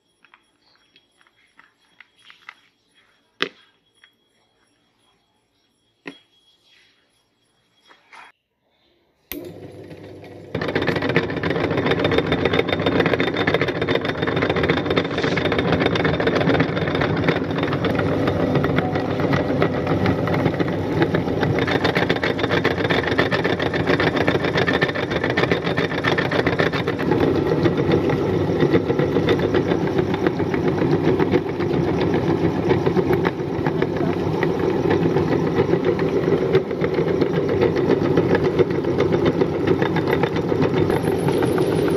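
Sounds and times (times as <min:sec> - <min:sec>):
electric grinder running: 0:09.4 - 0:41.9.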